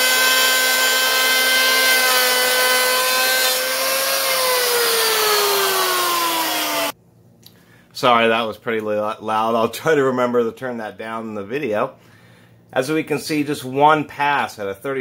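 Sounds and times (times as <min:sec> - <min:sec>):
planer cutting wood hiss: 0:00.0 - 0:06.9
electric hand planer whining: 0:00.0 - 0:07.0.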